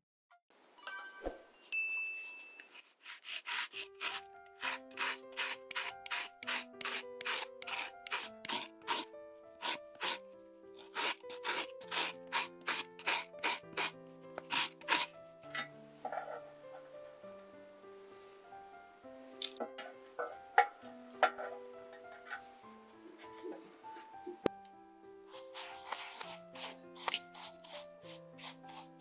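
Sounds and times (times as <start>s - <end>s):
soft background music: 0.8s - 29.0s
lemon rind scraping on grater: 2.9s - 10.2s, 10.8s - 15.1s, 25.4s - 29.0s.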